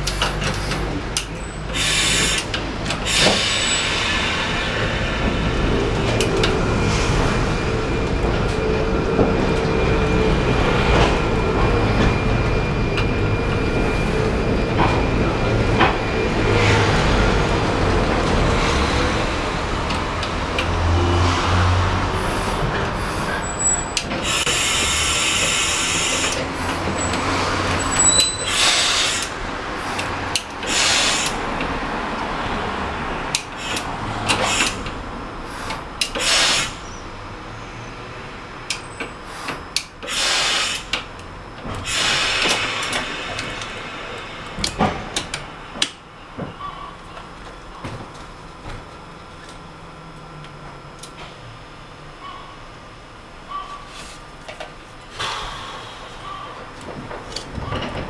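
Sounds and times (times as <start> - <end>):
tram wheels rumbling and rattling: 0.0 - 58.0.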